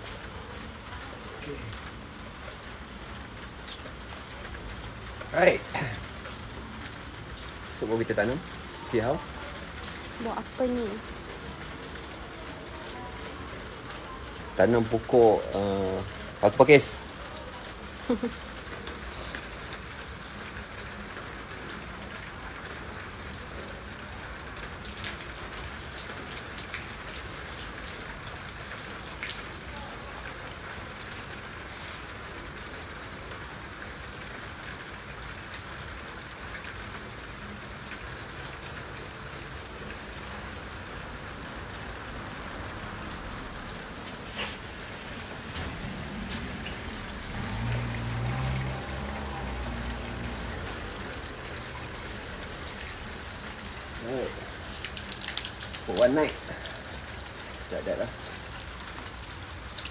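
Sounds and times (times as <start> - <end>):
rain on concrete and puddles: 0.0 - 59.9
water trickling: 0.0 - 59.9
close sharp drips: 44.0 - 59.9.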